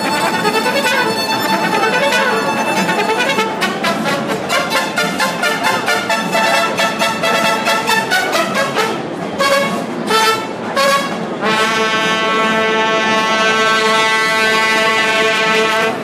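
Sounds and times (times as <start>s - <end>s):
mariachi band playing: 0.0s - 16.0s.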